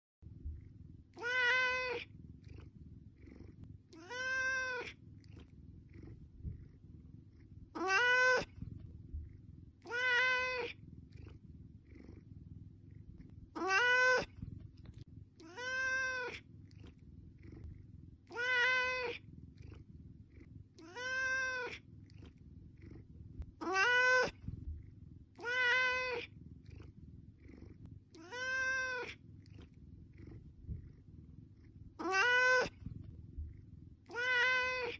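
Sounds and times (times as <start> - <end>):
low steady rumble: 0.2 - 13.7, 14.3 - 23.6, 24.3 - 34.8
cat meowing: 1.2 - 2.1, 3.9 - 5.0, 7.7 - 8.6, 9.8 - 10.8, 13.6 - 14.4, 15.4 - 16.4, 18.3 - 19.2, 20.8 - 21.8, 23.6 - 24.4, 25.4 - 26.3, 28.2 - 29.2, 32.0 - 32.8, 34.0 - 34.9.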